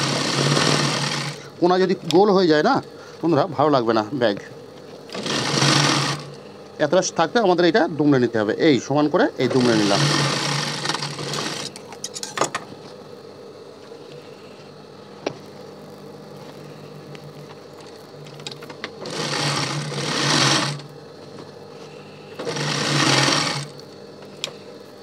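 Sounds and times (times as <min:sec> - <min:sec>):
sewing machine stitching: 0:00.0 - 0:01.4, 0:05.1 - 0:06.3, 0:09.4 - 0:11.8, 0:19.0 - 0:20.9, 0:22.4 - 0:23.8.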